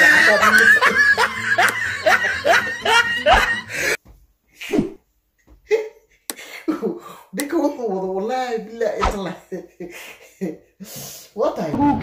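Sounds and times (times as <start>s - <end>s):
man laughing: 0.0s - 4.0s, 5.4s - 7.1s, 9.1s - 10.8s.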